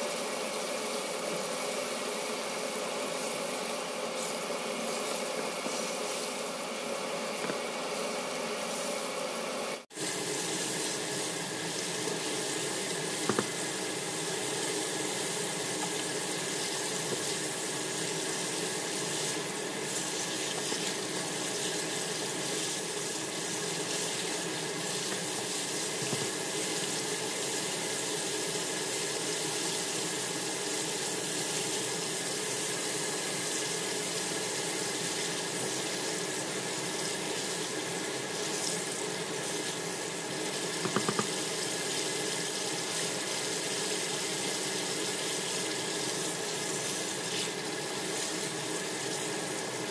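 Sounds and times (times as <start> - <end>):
hot oil sizzling and bubbling: 0.0 - 49.9
sharp tap: 13.3 - 13.5, 40.8 - 41.3.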